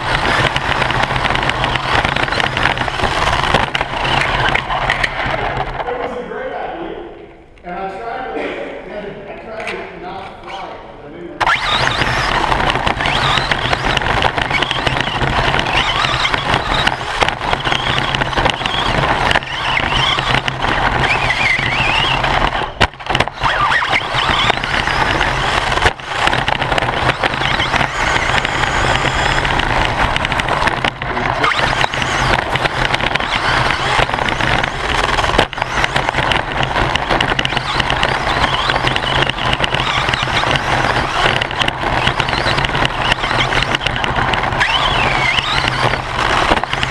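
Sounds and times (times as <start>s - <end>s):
motor and drivetrain whine: 0.0s - 6.2s, 11.4s - 46.9s
chassis rattle: 0.0s - 6.4s, 11.4s - 46.9s
tyre noise on dirt: 11.4s - 46.9s.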